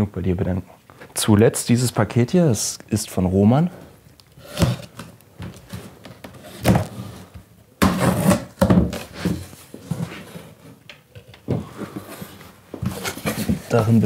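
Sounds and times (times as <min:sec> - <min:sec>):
cardboard rustling: 0:04.4 - 0:10.8, 0:11.4 - 0:14.0
knife cutting cardboard box: 0:05.7 - 0:09.4.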